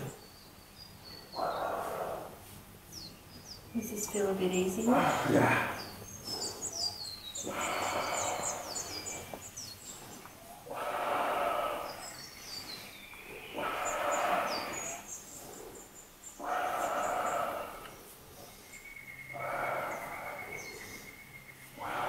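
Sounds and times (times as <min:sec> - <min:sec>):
faint birds chirping: 0:00.0 - 0:22.0
person breathing heavily: 0:01.4 - 0:02.6, 0:04.8 - 0:22.0.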